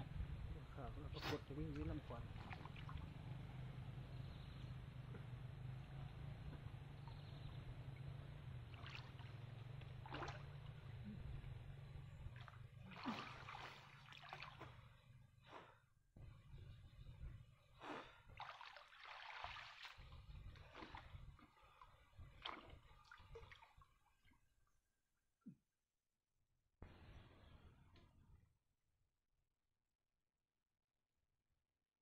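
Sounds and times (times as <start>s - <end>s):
water splashing: 1.7s - 3.1s, 8.6s - 10.9s, 12.3s - 14.9s, 17.8s - 21.2s, 22.3s - 23.8s.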